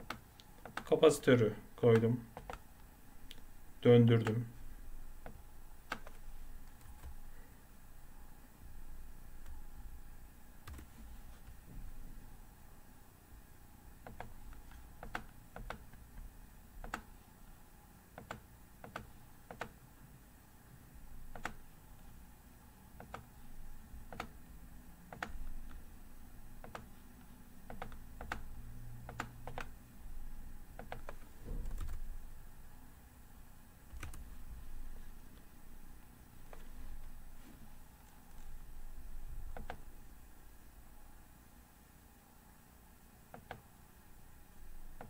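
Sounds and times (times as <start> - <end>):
computer mouse clicks: 0.0 - 0.9, 1.9 - 2.6, 5.2 - 7.2, 14.0 - 16.0, 16.8 - 17.1, 18.2 - 19.8, 21.3 - 21.6, 23.0 - 23.3, 24.1 - 24.4, 25.1 - 25.8, 26.6 - 28.5, 29.1 - 29.7, 30.8 - 32.1, 39.5 - 39.9, 43.3 - 43.7
low room hum: 0.0 - 45.0.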